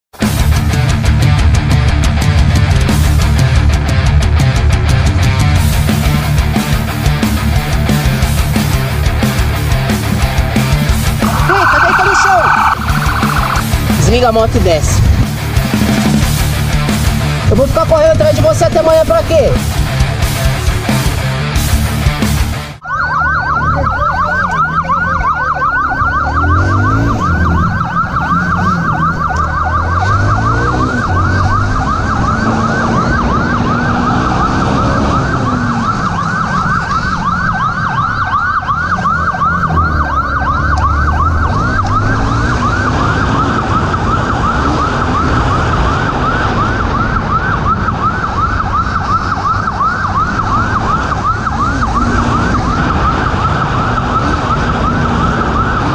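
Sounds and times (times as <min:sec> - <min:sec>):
motorcycle engine: 0:00.2 - 0:18.4, 0:19.6 - 0:55.9
motorcycle siren yelping: 0:07.4 - 0:16.1, 0:22.8 - 0:55.9.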